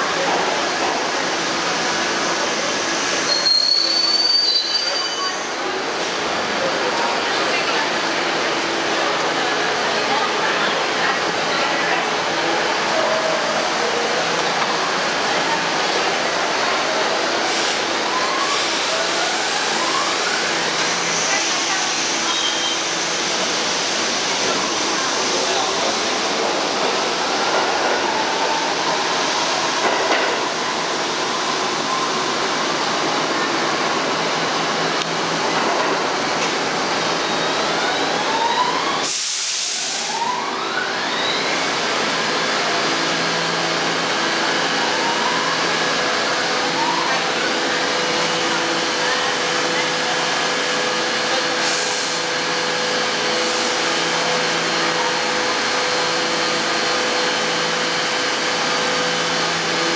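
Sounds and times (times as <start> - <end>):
steel wheels rumbling on rail: 0.0 - 40.1, 40.9 - 59.9
train traction motors whining: 39.8 - 59.9.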